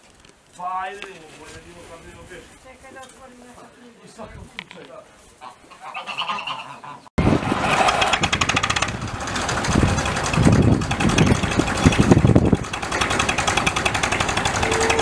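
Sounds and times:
tractor engine knocking: 7.9s - 15.0s
heavy low rumble: 8.2s - 15.0s.

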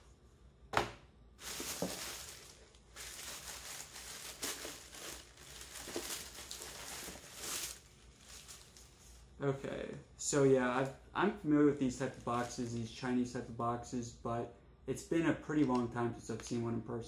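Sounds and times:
tissue paper crinkling: 1.4s - 9.2s.

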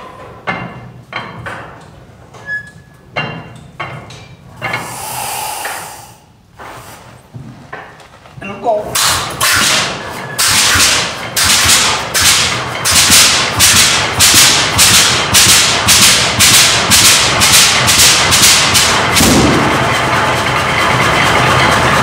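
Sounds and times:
tractor engine exhaust cracking: 9.0s - 22.0s.

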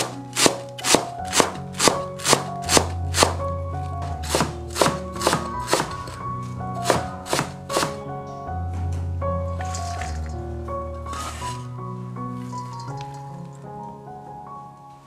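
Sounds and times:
cleaver chopping on cutting board: 0.0s - 3.4s, 4.2s - 6.1s, 6.8s - 8.0s
background music with bass notes: 0.0s - 15.0s.

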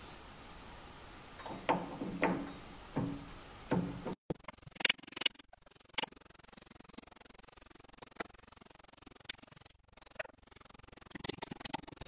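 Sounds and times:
metallic clunks with ring: 1.4s - 4.2s.

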